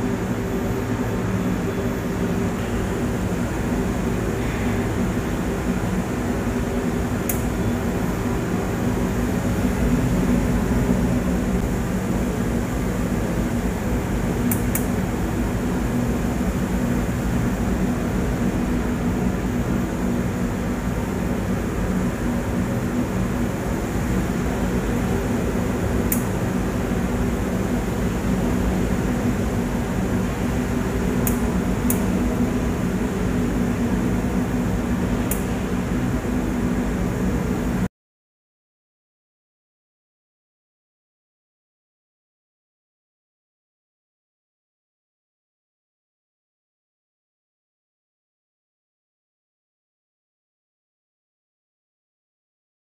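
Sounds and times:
spray booth hum and air rush: 0.0 - 37.9.

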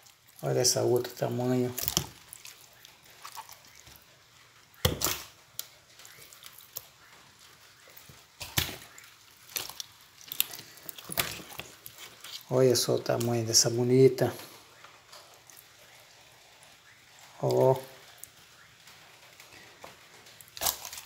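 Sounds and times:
wet fish slapping and knocking: 1.7 - 4.0, 4.8 - 5.3, 7.9 - 12.5.

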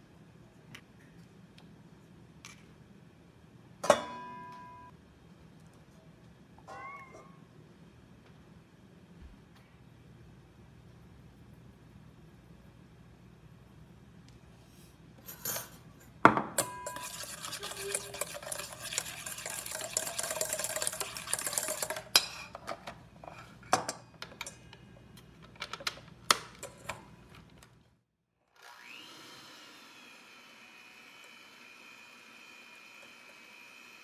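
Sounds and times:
whisk scraping metal bowl: 16.6 - 22.5
hand mixer motor whine: 28.6 - 34.0.

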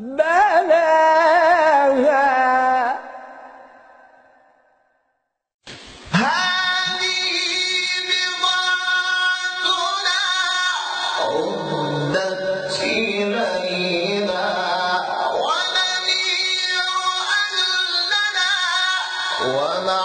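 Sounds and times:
man chanting melodic recitation: 6.1 - 20.0.

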